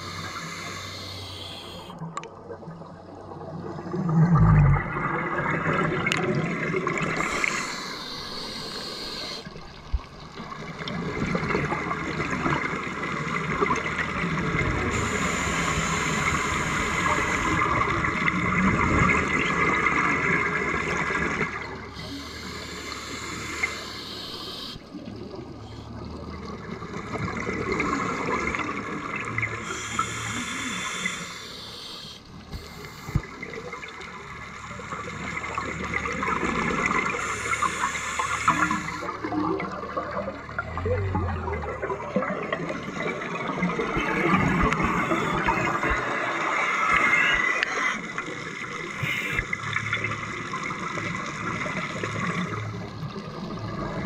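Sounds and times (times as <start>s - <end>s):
steady underwater hiss: 0.0s - 2.0s, 5.4s - 54.0s
underwater exhalation bubbles: 38.5s - 48.2s.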